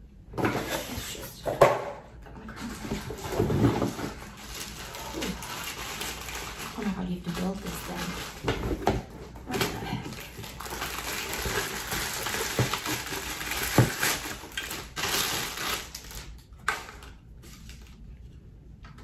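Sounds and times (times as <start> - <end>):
plastic bags crinkling: 2.5 - 18.1.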